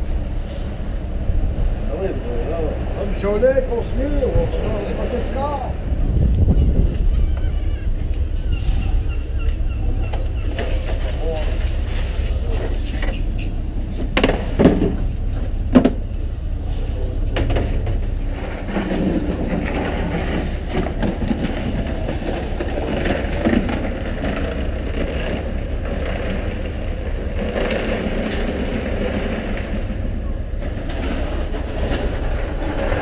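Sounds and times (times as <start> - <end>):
boat engine droning: 0.0 - 33.0
sharp knocks and clatter: 12.6 - 15.1, 15.7 - 16.1, 17.3 - 29.9.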